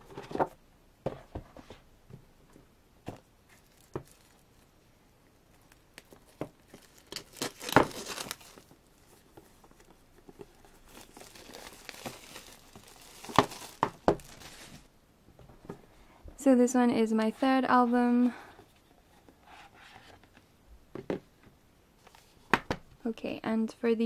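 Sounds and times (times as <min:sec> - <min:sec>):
plastic wrap crinkling and tearing: 0:03.5 - 0:04.6, 0:05.5 - 0:14.9.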